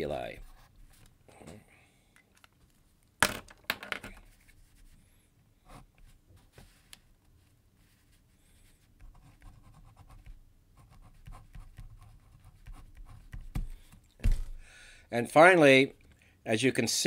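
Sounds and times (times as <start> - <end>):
pen scratching on paper: 9.0 - 13.8.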